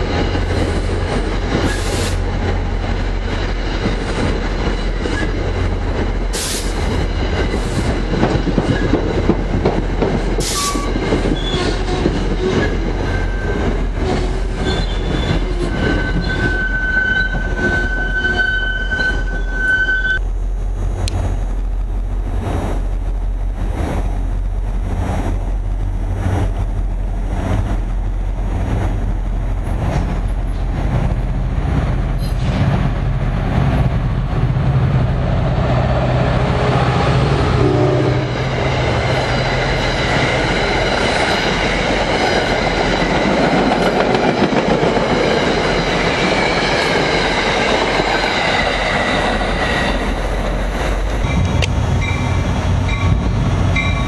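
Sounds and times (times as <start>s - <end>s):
high wheel squeal: 14.6s - 20.2s
locomotive engine drone: 15.8s - 54.0s.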